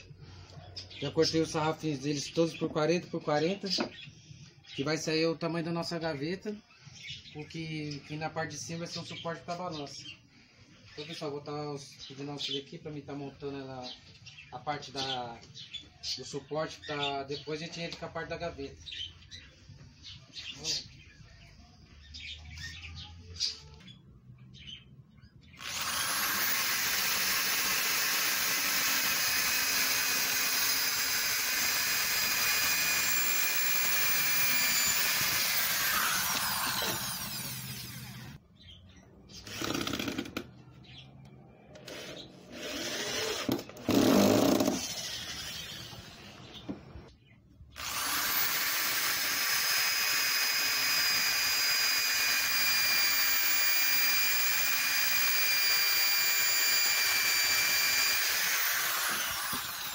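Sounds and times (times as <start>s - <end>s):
electric drill boring into wood: 25.6s - 38.4s, 39.4s - 40.5s, 41.8s - 46.7s, 47.8s - 59.9s.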